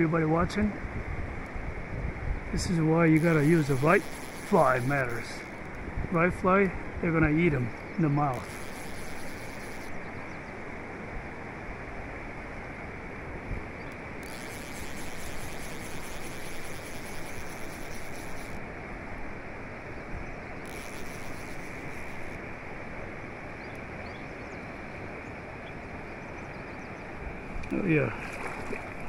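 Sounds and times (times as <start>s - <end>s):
river water rushing: 27.0s - 29.0s.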